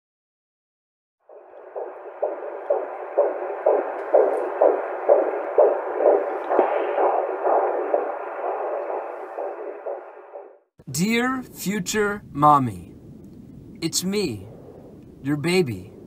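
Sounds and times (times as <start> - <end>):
fetal heartbeat whooshing pulse: 1.3 - 10.7.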